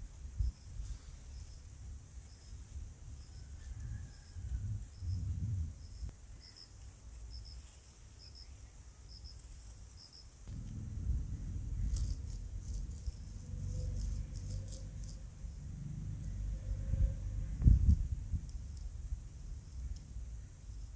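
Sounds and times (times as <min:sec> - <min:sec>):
insect chirping: 0:00.0 - 0:20.9
low rumble: 0:03.8 - 0:06.1, 0:10.4 - 0:20.9.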